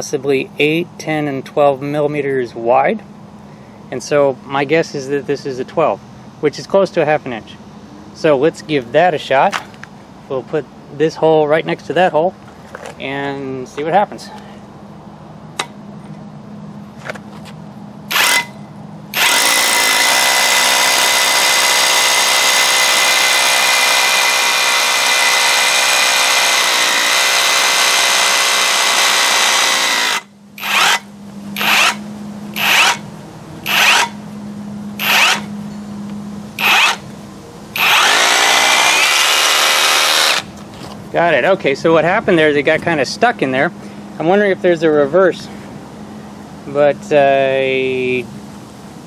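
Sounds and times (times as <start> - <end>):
hammer drill boring into concrete: 18.1 - 18.6, 19.2 - 32.0, 32.6 - 33.0, 33.7 - 34.2, 35.0 - 35.5, 36.6 - 37.0, 37.8 - 40.5.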